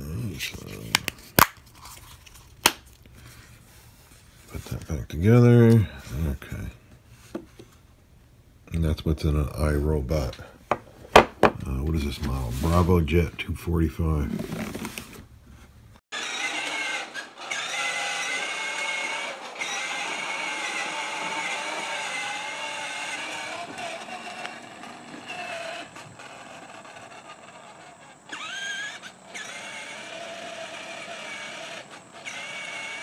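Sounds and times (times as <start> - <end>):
toy electric motor whining: 16.1 - 33.0.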